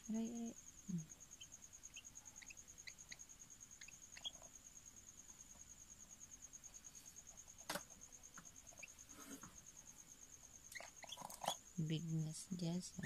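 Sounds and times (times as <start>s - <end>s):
faint high-pitched pulsing tone: 0.0s - 7.5s
bird chirps: 0.2s - 4.6s, 10.6s - 11.8s.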